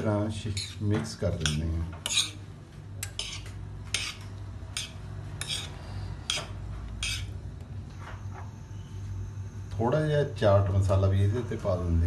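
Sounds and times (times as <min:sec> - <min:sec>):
metal spoon scraping a plate: 0:00.4 - 0:02.4, 0:03.0 - 0:07.4.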